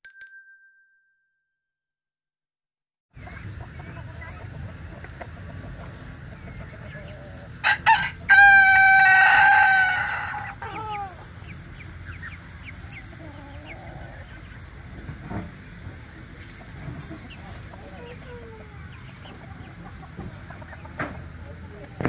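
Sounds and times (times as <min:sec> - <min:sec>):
rooster crowing: 0:07.6 - 0:11.2.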